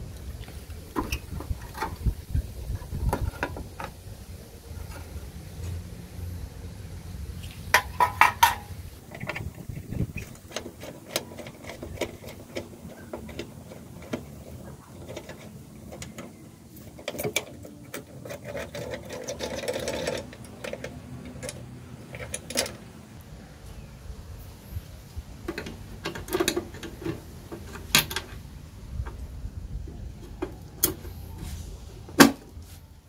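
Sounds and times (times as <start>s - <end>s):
typewriter mechanism clicking and rattling: 10.3s - 22.9s.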